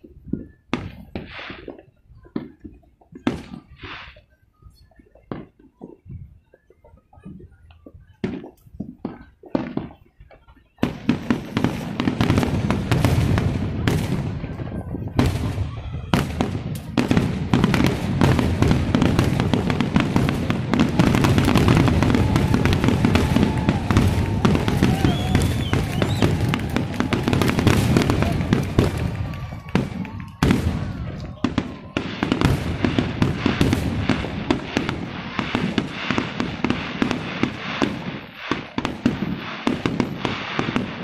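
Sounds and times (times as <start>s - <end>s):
fireworks booming and crackling: 0.0s - 41.0s.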